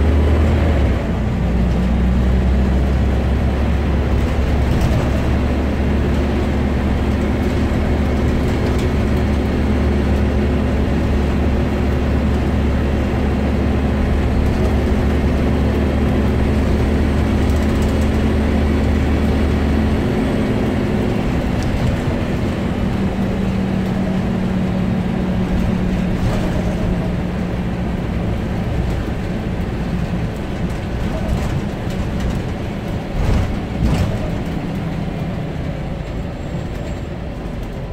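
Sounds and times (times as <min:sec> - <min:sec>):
bus engine hum and road noise: 0:00.0 - 0:37.9.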